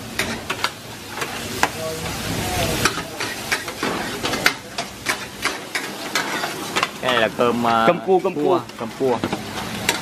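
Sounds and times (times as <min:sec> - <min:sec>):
food sizzling in a pan: 0:00.0 - 0:10.0
metal ladle scraping a pan: 0:02.8 - 0:07.3.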